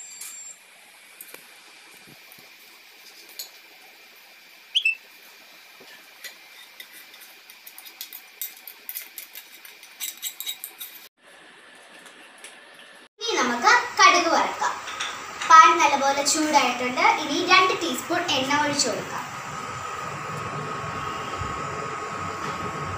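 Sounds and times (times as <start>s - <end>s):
spoon scraping a pan: 6.2s - 11.1s.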